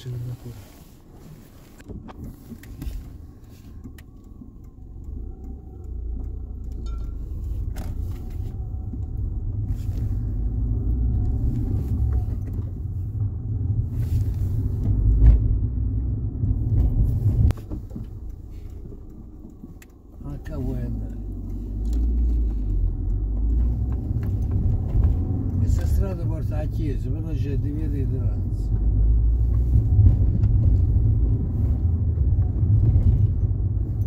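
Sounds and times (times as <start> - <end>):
car engine and road noise: 0.0 - 34.0.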